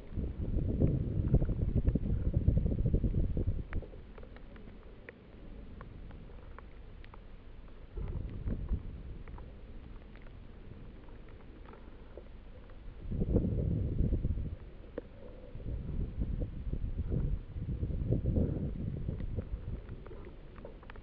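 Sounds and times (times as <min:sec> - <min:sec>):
wind buffeting microphone: 0:00.0 - 0:04.1, 0:07.9 - 0:09.5, 0:12.8 - 0:21.0
faint clicks and ticks: 0:00.0 - 0:21.0.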